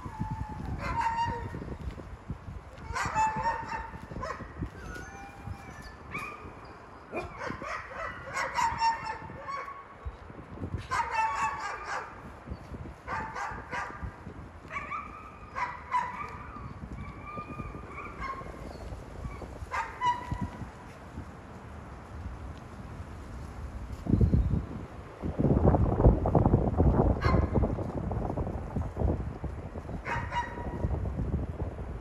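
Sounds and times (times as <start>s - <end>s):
wolves whining and yelping: 0.0s - 1.6s, 2.8s - 9.8s, 10.9s - 12.7s, 14.7s - 20.6s.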